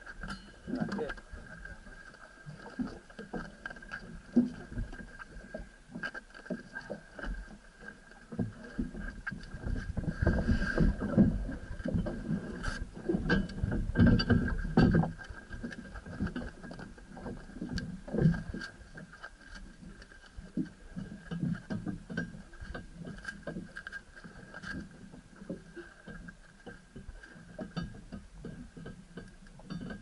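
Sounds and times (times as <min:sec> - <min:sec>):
boat hull thumping over water: 0:08.4 - 0:16.6.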